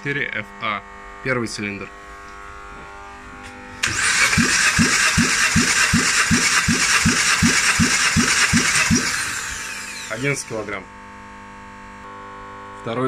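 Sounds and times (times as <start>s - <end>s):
starter motor whine: 3.0s - 10.9s
car engine cranking: 3.8s - 10.6s.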